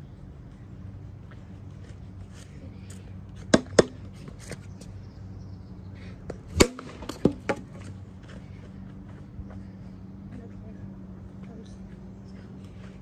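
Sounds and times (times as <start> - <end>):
low steady hum: 0.0 - 13.0
plastic ball hitting plastic bat: 3.5 - 4.0, 6.5 - 7.8.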